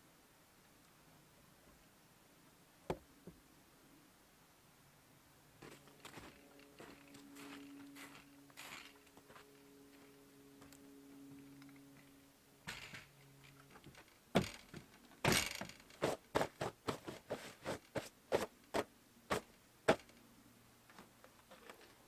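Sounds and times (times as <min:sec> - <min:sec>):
boots stomping on wooden boards: 0:14.4 - 0:17.3.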